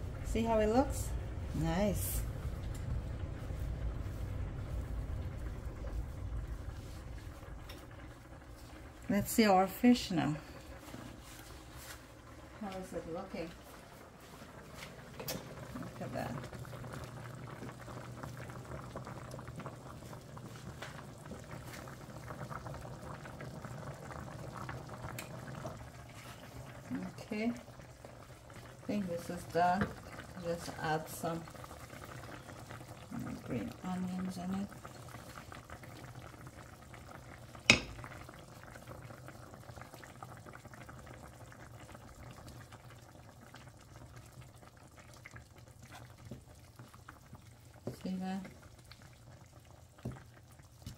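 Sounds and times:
low hum: 0.0s - 22.8s
low steady hum: 0.0s - 50.6s
cooking liquid bubbling: 0.0s - 50.9s.

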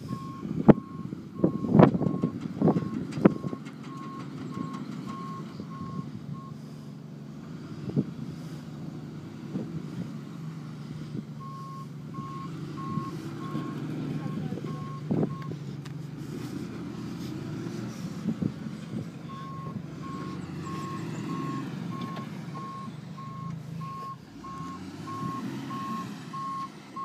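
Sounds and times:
truck backup alarm beeping: 0.0s - 6.8s, 11.4s - 15.6s, 19.2s - 27.0s
truck engine running: 0.0s - 27.0s.

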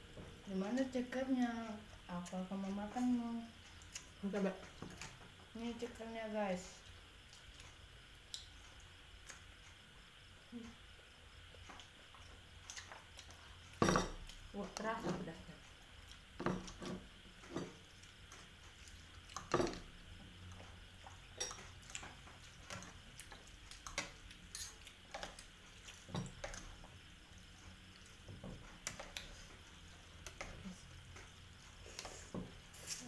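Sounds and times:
cutlery clinking on bowls: 23.9s - 25.3s.

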